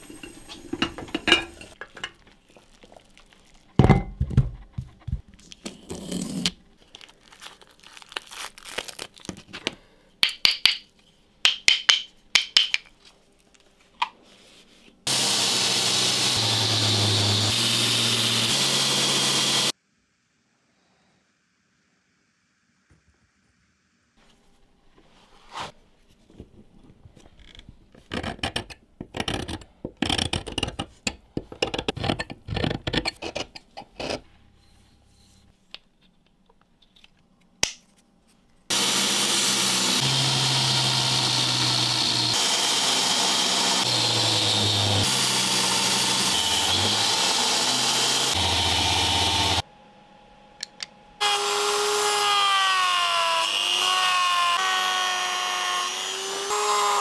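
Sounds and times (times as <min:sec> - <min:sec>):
belt grinder sanding wood: 0:15.1 - 0:19.7, 0:38.7 - 0:49.6, 0:51.2 - 0:57.0
scraping and rubbing strokes: 0:25.0 - 0:26.3
rotary tool sanding drum whine: 0:38.7 - 0:49.6.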